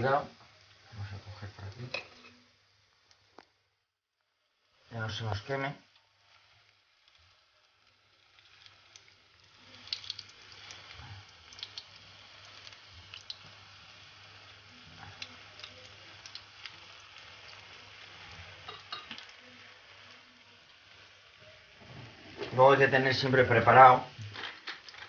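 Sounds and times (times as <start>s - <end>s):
food sizzling in hot oil: 0.0s - 25.0s
oil pops and crackles: 9.8s - 10.4s, 24.2s - 25.0s.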